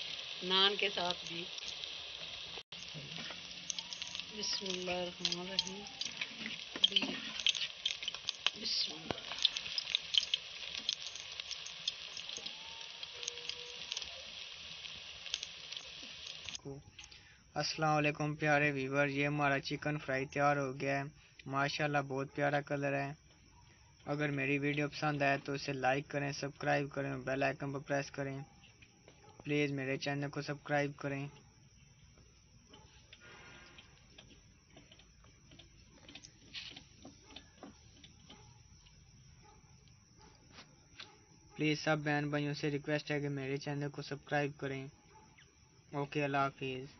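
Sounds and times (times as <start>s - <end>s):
chicken deep-frying sizzle: 0.0s - 17.2s
faint irregular clicks: 1.2s - 17.3s, 32.1s - 41.2s.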